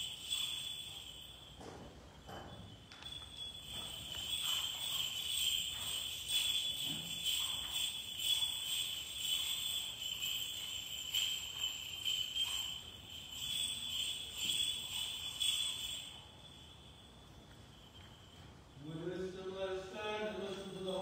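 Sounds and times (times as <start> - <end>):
censer bells jingling: 0.0 - 21.0.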